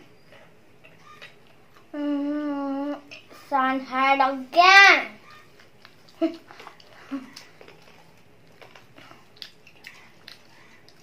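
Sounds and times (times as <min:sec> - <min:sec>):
child chewing with mouth smacks: 0:00.0 - 0:03.5, 0:05.2 - 0:11.0
child vocal sound: 0:01.9 - 0:03.5.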